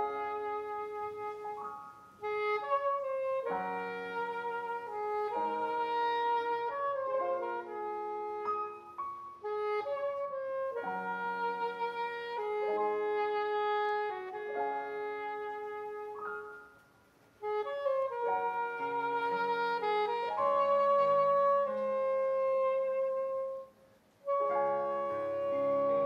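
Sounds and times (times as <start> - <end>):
soprano saxophone melody: 0.0 - 26.0.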